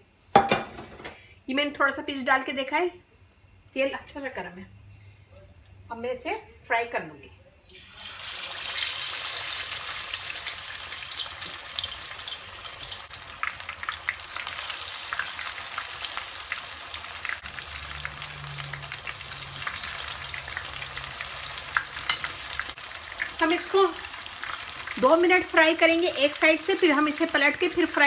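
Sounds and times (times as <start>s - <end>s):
oil sizzling and popping: 7.6s - 28.0s.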